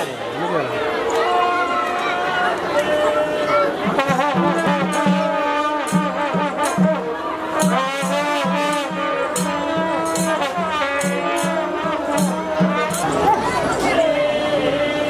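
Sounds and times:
wailing wind instruments: 0.7s - 15.0s
drum beating: 3.8s - 13.9s
cymbals clashing: 4.0s - 13.8s.

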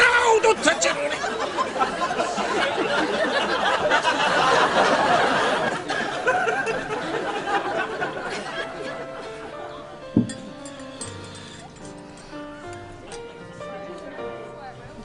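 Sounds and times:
audience laughing: 0.6s - 10.0s.

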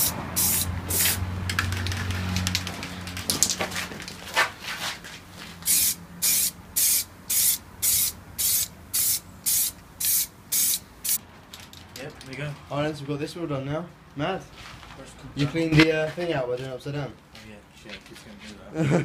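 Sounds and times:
spray-paint can hissing in bursts: 0.0s - 1.2s, 5.6s - 11.2s.

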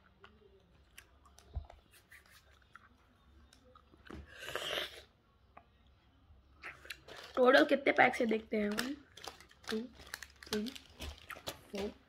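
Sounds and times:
faint gum chewing: 0.0s - 5.7s.

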